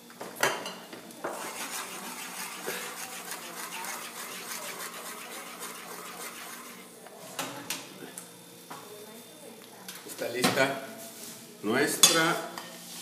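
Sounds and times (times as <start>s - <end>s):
utensil scraping metal frying pan: 1.3s - 6.9s.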